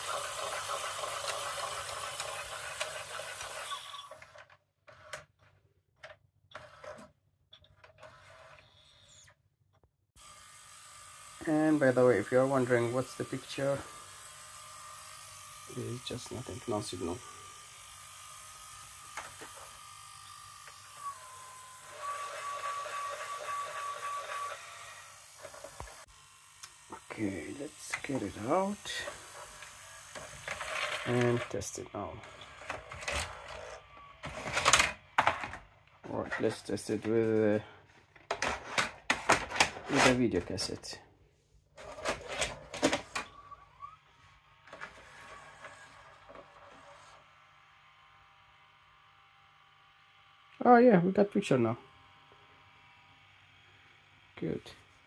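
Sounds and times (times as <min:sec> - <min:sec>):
tape deck motor whine: 0:00.0 - 0:05.2, 0:10.2 - 0:36.2, 0:41.8 - 0:50.6
loading mechanism whine: 0:18.8 - 0:37.6.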